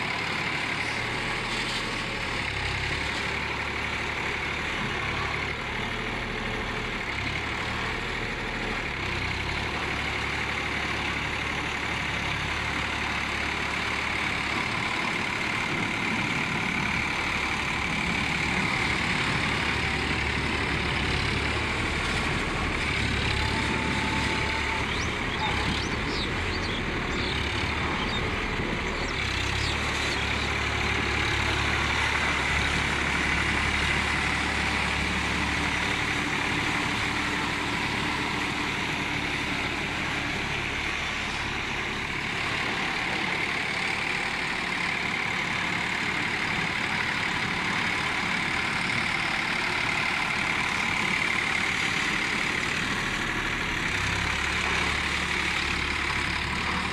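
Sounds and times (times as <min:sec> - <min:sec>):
tractor diesel engine running: 0:00.0 - 0:56.9.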